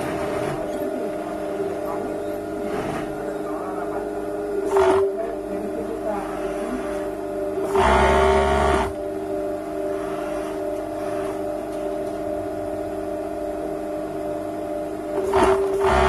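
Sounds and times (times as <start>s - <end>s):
overlock machine stitching: 0.0s - 0.8s, 4.6s - 5.1s, 6.3s - 9.0s, 15.2s - 16.0s
sewing machine motor humming: 0.0s - 3.4s, 4.5s - 9.0s, 15.1s - 16.0s.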